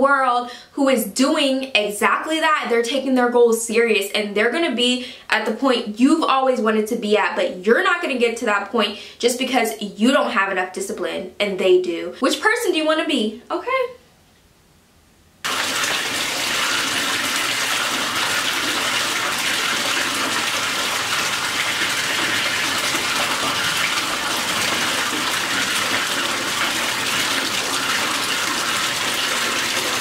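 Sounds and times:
tap water pouring into bathtub: 15.4 - 30.0.

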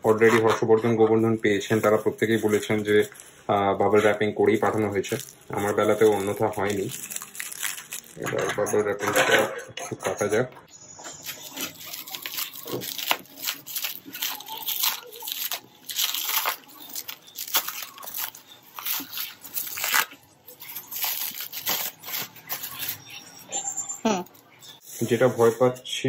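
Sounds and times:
scissors cutting bubble wrap: 0.0 - 1.0, 4.0 - 8.3, 11.2 - 23.2
bubble wrap crinkling and snapping: 1.4 - 8.5, 11.2 - 23.1.

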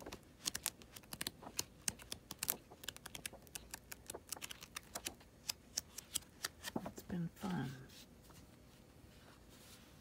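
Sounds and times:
paper pages flicking: 0.0 - 6.9.

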